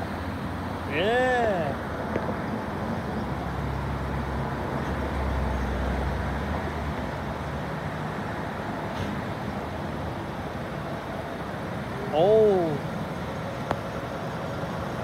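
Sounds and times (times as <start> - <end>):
street traffic noise: 0.0 - 15.0
vehicle engines rumbling: 0.0 - 15.0.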